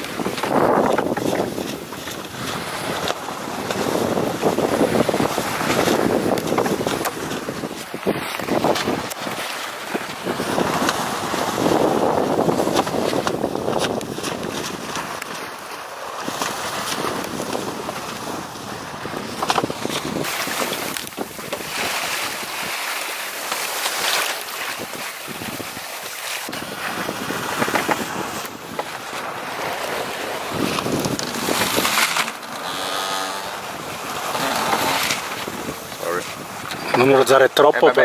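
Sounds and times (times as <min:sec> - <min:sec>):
wind buffeting microphone: 0:00.0 - 0:22.8, 0:24.5 - 0:38.0
water rushing along hull: 0:00.0 - 0:38.0.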